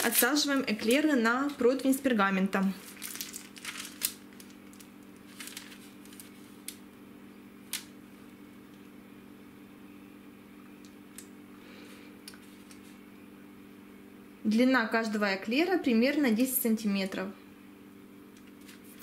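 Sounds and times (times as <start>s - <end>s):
parchment paper rustling: 0.0s - 1.7s, 2.8s - 6.8s, 18.4s - 19.0s
steady low hum: 0.0s - 19.0s.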